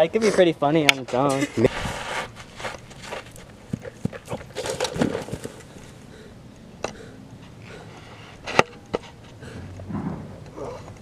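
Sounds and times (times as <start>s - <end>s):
thuds and rustling: 2.5s - 5.6s, 9.9s - 10.8s
sharp knock: 9.9s - 10.4s.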